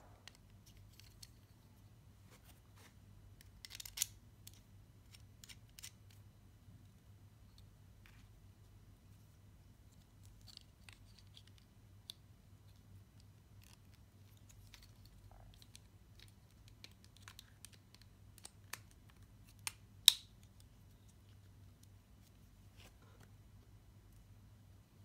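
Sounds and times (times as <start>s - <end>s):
sharp plastic snap: 18.4s - 20.4s.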